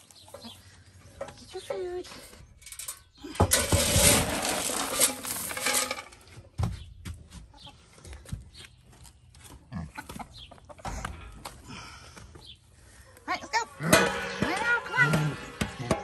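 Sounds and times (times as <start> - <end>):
feed pellets rattling: 2.7 - 6.2.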